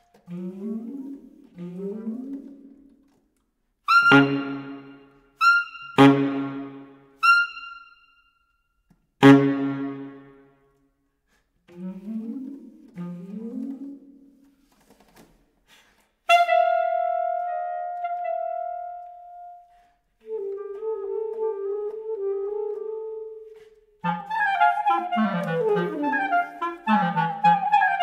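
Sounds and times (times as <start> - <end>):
saxophones and clarinets playing: 0.1 - 2.9, 3.9 - 8.1, 9.2 - 10.4, 11.7 - 14.2, 16.3 - 28.0.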